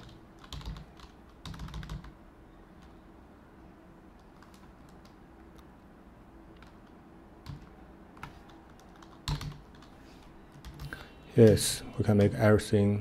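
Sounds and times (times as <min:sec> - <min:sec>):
computer keyboard keystrokes: 0:00.0 - 0:02.2, 0:04.2 - 0:05.7, 0:06.5 - 0:11.6.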